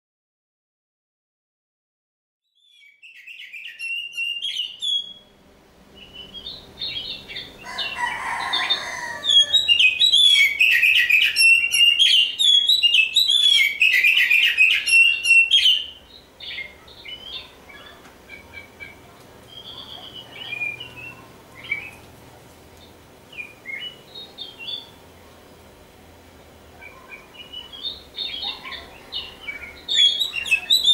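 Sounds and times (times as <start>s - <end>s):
bird singing whistled phrases: 2.5s - 5.3s, 9.2s - 17.9s, 18.8s - 22.0s, 26.8s - 30.9s.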